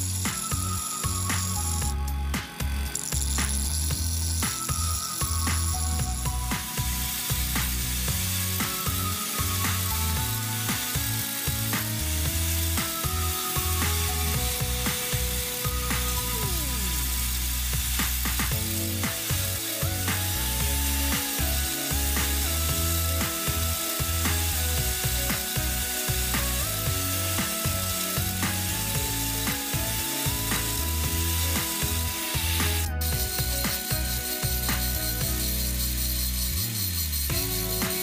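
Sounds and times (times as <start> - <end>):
angle grinder grinding metal: 0.0 - 38.0.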